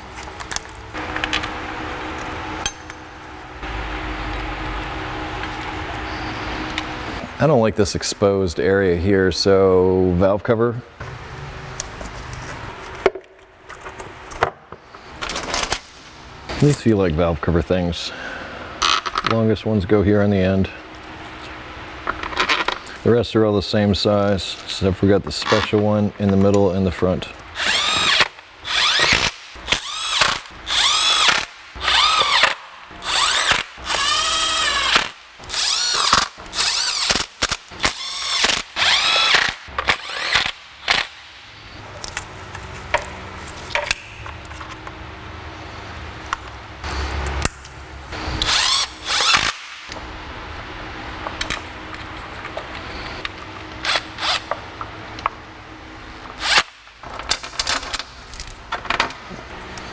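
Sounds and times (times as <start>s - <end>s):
cordless power driver spinning: 27.6s - 41.2s, 48.4s - 49.6s.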